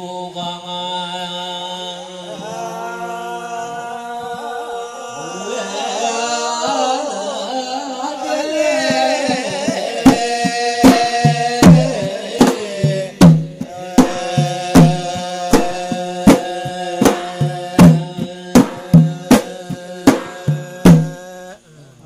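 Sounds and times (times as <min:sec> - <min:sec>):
men chanting: 0:00.0 - 0:22.0
hand drum beats: 0:08.8 - 0:21.2.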